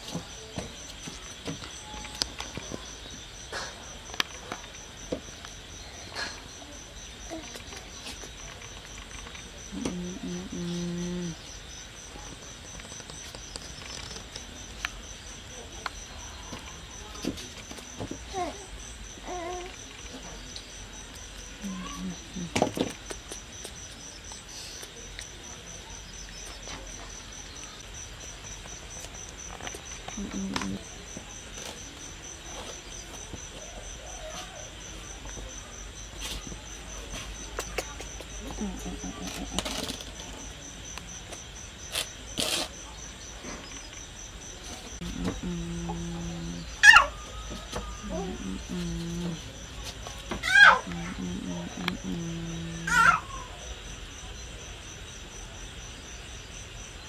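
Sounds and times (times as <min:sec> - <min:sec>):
insect chirping: 0:00.0 - 0:57.0
low steady pitched tone: 0:45.0 - 0:49.5.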